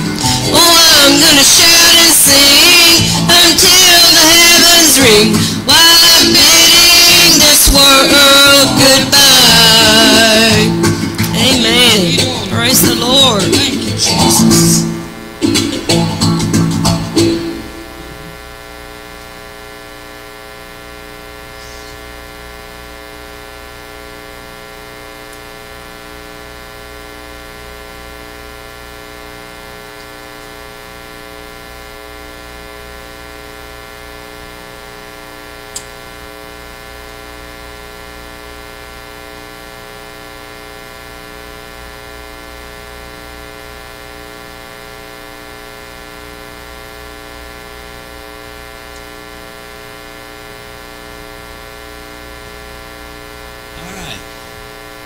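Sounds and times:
electrical mains hum and buzz: 0.0s - 55.0s
sharp click: 35.7s - 35.9s.

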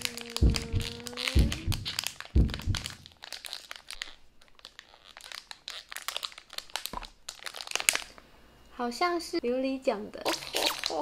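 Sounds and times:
foil bag crinkling: 0.0s - 8.2s
soft thump: 0.4s - 3.0s.

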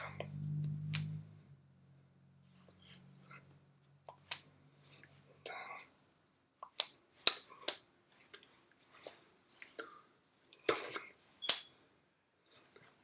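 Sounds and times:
hands clapping and slapping: 6.6s - 7.9s.

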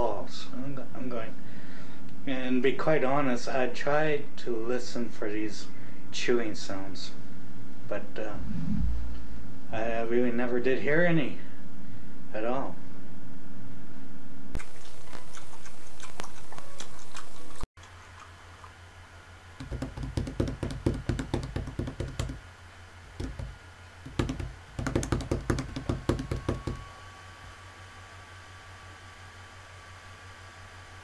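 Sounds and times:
rapid knocking clicks: 19.6s - 22.4s, 23.2s - 26.8s.

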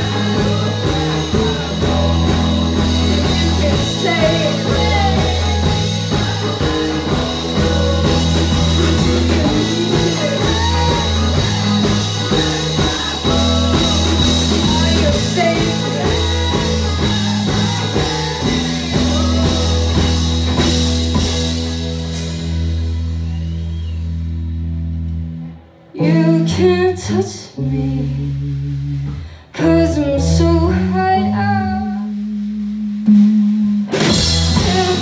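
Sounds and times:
drum kit with cymbal hits: 0.0s - 25.2s, 32.3s - 35.0s
bass guitar: 0.0s - 35.0s
electric guitars: 0.0s - 35.0s.

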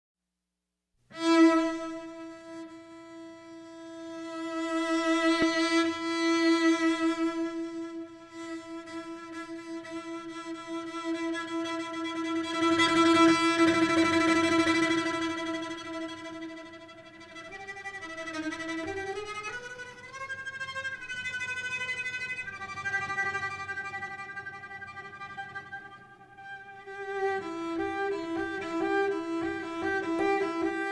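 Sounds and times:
cello bowed note: 1.1s - 30.9s.

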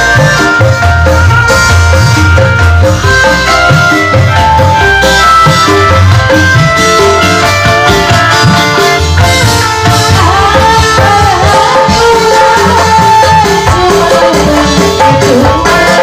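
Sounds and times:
live band music: 0.0s - 16.0s
woman singing into microphone: 9.9s - 16.0s.

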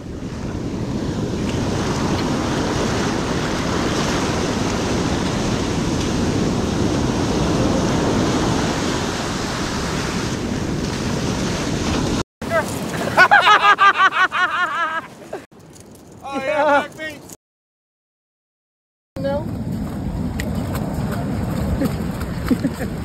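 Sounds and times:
wind rushing over microphone: 0.0s - 12.2s
ocean surf breaking on beach: 0.0s - 15.4s, 19.5s - 23.0s.

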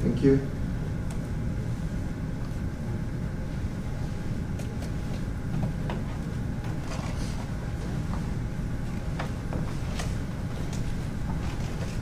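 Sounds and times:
room background rumble: 0.0s - 12.0s.

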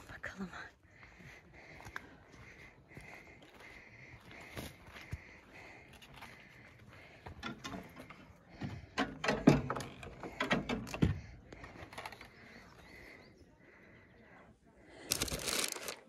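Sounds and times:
knocks and rattles: 7.4s - 11.4s.

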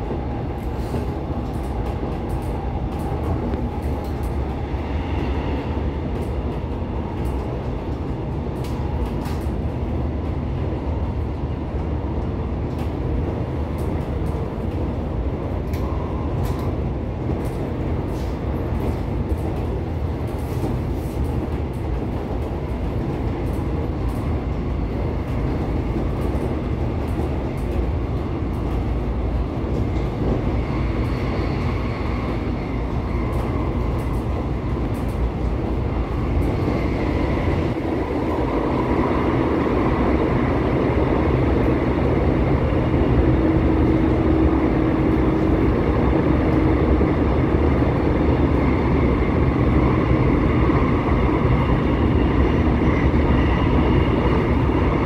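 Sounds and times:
train wheels rumbling: 0.0s - 55.0s.

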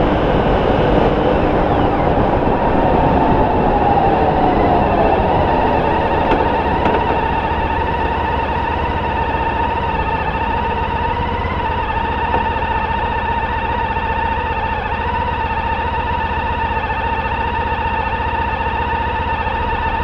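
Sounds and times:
wind noise: 0.0s - 13.0s
motorcycle engine whine and rumble: 0.0s - 20.0s.

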